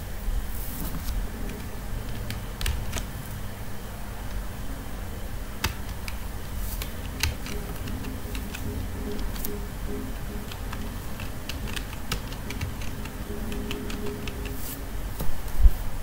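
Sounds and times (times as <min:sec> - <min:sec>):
low steady hum: 0:00.0 - 0:16.0
keyboard keystrokes: 0:01.4 - 0:03.2, 0:05.6 - 0:14.8.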